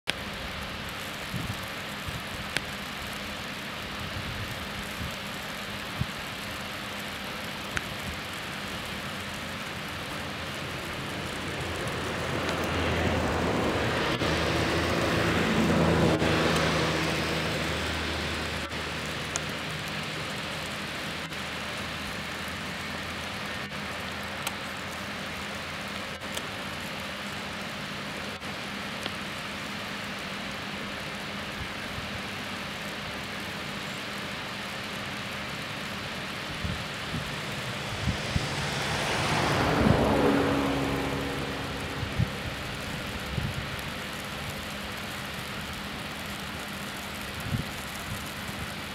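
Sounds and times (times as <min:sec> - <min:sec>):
waterfall rushing: 0:08.4 - 0:24.4, 0:35.4 - 0:47.2
vehicle passing: 0:10.8 - 0:19.1, 0:37.0 - 0:43.3.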